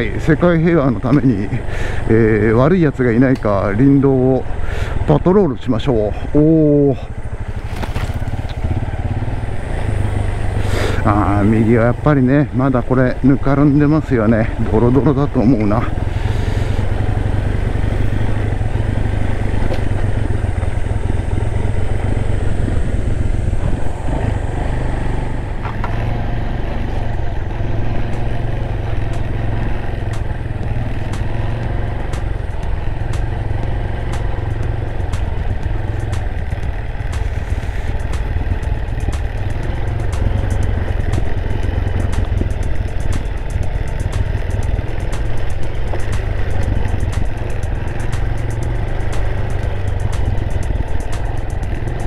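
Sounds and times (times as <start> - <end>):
motorcycle engine running: 0.0 - 52.0
sharp ticks and clatter: 25.4 - 52.0.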